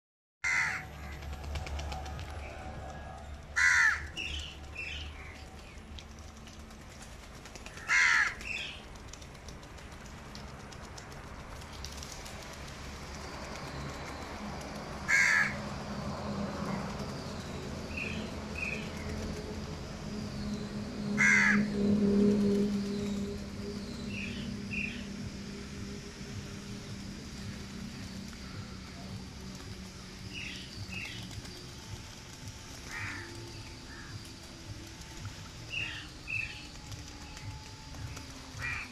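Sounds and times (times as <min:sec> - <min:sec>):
crows cawing: 0:00.4 - 0:01.3, 0:03.6 - 0:04.5, 0:07.8 - 0:08.8, 0:15.1 - 0:15.6, 0:21.2 - 0:21.8, 0:32.9 - 0:34.2, 0:38.6 - 0:38.9.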